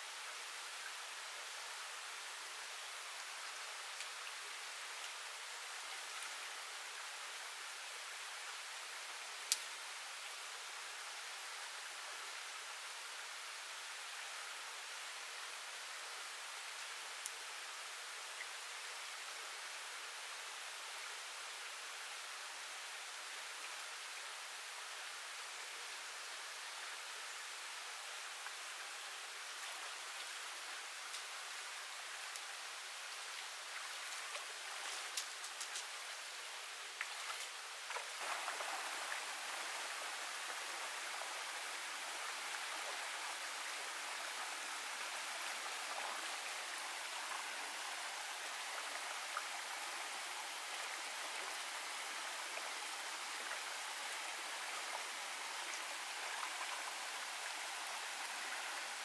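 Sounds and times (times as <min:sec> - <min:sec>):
rocky stream running: 0:00.0 - 0:59.0
small cascade: 0:33.6 - 0:59.0.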